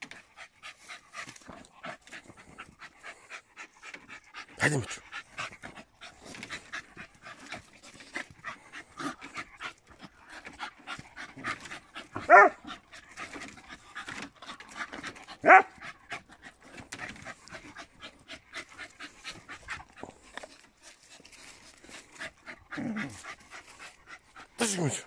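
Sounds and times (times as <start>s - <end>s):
dogs panting hard: 0.0s - 25.0s
dog yelps: 12.2s - 12.6s, 15.4s - 15.7s.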